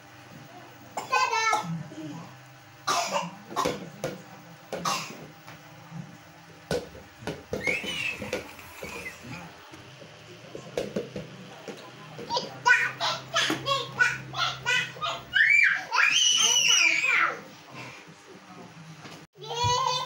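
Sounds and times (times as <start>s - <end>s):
child squealing: 7.6s - 9.2s, 14.7s - 17.4s
child's voice: 12.3s - 17.5s, 19.4s - 20.0s.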